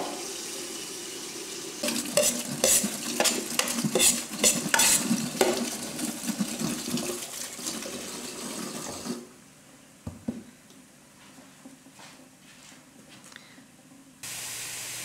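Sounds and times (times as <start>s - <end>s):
metal utensil clinking in pan: 1.8s - 5.0s
food frying in oil: 1.8s - 7.3s.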